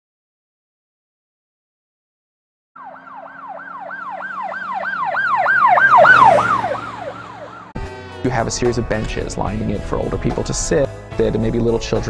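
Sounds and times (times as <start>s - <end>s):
emergency siren yelping: 2.8s - 7.8s.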